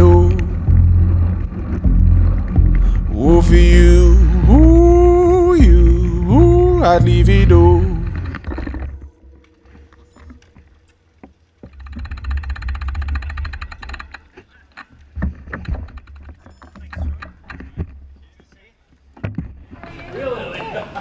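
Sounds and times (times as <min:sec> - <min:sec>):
rapid bicycle ticking: 0:11.1 - 0:18.7.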